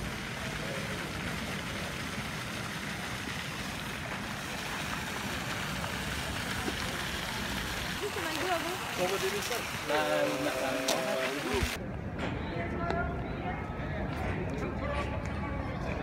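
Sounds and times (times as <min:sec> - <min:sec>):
fountain splashing into basin: 0:00.0 - 0:11.8.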